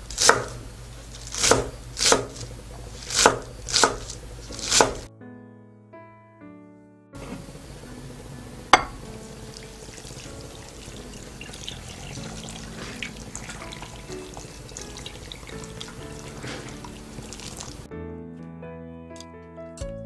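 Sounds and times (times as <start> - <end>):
background music: 4.5 - 20.0
glass clink: 8.7 - 9.0
water pouring and splashing: 9.1 - 17.9.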